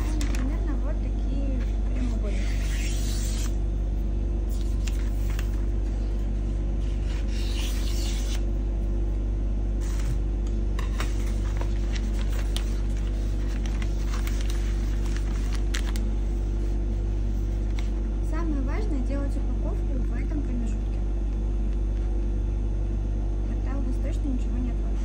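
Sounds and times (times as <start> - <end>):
paper crinkling: 0.0 - 0.7, 4.5 - 6.1, 11.0 - 18.0
wrapping paper rustling: 0.0 - 0.8, 4.5 - 6.1, 11.0 - 18.0
steady low hum: 0.0 - 25.0.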